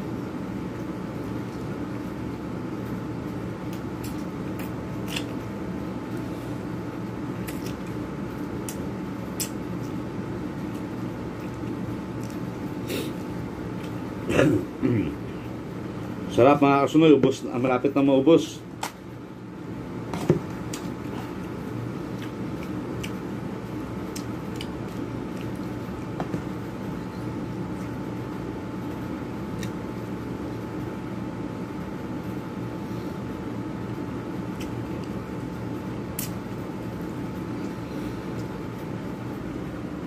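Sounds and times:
steady low hum: 0:00.0 - 0:40.0
chewing: 0:20.7 - 0:23.3, 0:24.1 - 0:26.1.

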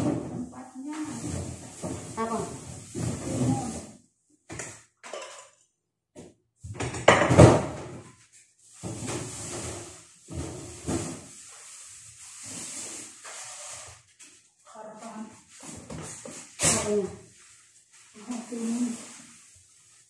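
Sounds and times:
clattering and rubbing: 0:00.0 - 0:05.6, 0:06.8 - 0:20.0
knocks on countertop: 0:06.2 - 0:08.0.

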